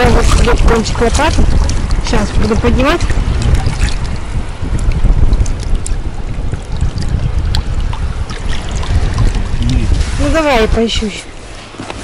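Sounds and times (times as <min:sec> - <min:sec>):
seawater sloshing around legs: 0:00.0 - 0:12.0
wind on microphone: 0:00.0 - 0:12.0.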